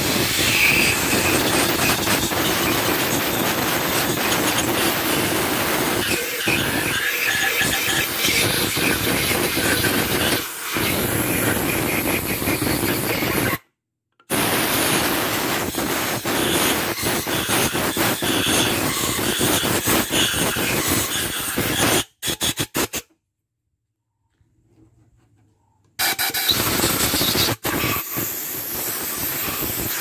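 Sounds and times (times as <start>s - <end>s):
hand scraper rasping on metal: 0.2s - 13.6s, 15.7s - 23.0s.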